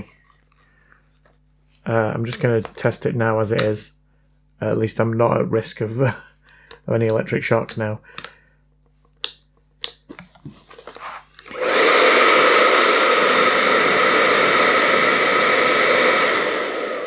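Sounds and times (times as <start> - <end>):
hair dryer blowing with whine: 11.4 - 17.0.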